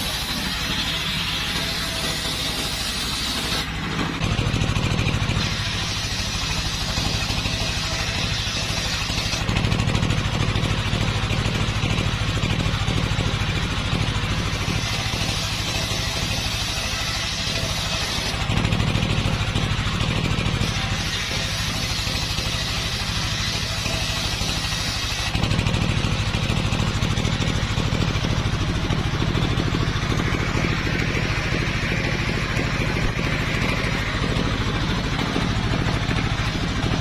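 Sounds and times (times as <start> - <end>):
circular saw ripping wood: 0.0 - 29.0
stationary engine chugging: 0.0 - 37.0.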